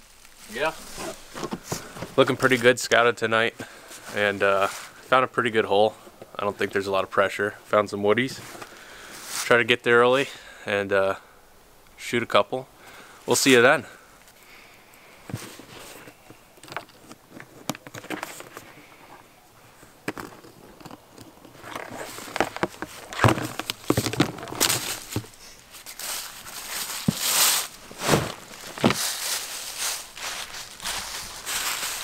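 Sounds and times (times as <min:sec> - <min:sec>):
footsteps in dry leaves: 0:00.0 - 0:02.6, 0:23.0 - 0:32.0.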